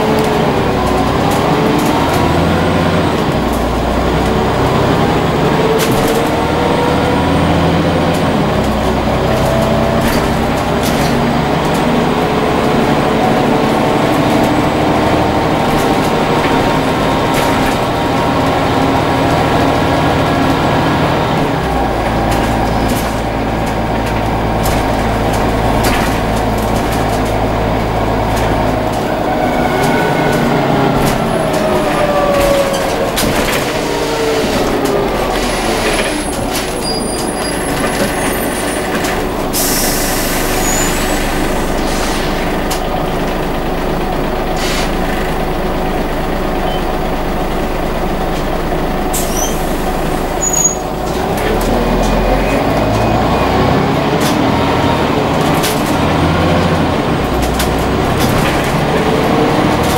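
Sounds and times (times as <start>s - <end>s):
bus engine running: 0.0s - 59.9s
air hiss: 39.6s - 42.4s.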